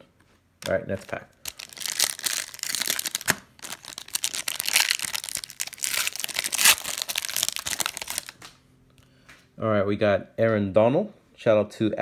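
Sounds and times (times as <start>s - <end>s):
foil wrapper crinkling and tearing: 0.6s - 8.6s.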